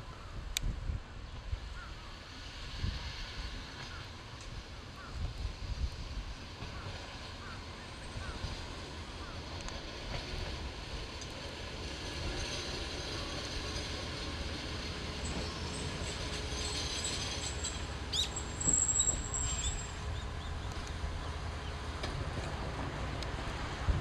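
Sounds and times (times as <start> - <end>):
diesel railcar engine rumbling: 0.0 - 24.0
high wheel squeal: 15.1 - 20.3.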